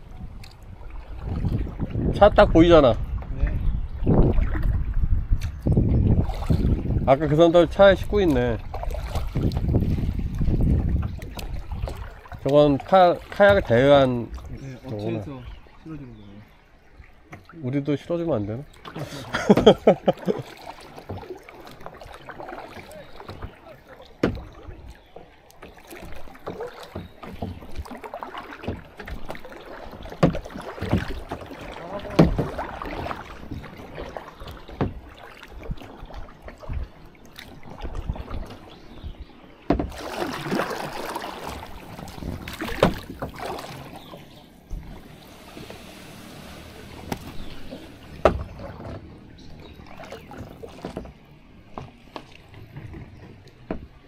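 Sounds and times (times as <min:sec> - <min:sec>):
paddle strokes splashing: 0:00.0 - 0:54.0
paddle knocking on kayak hull: 0:07.8 - 0:14.5, 0:18.8 - 0:38.7, 0:39.6 - 0:54.0.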